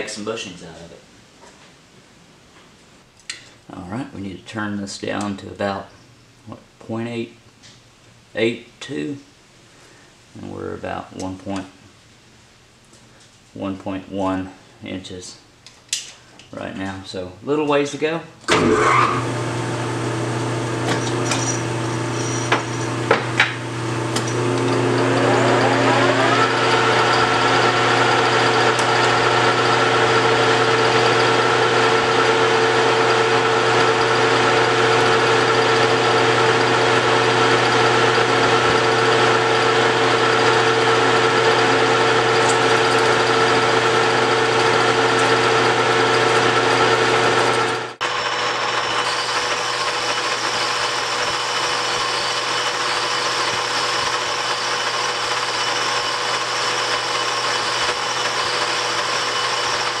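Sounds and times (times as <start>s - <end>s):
metal lathe running: 18.5s - 60.0s.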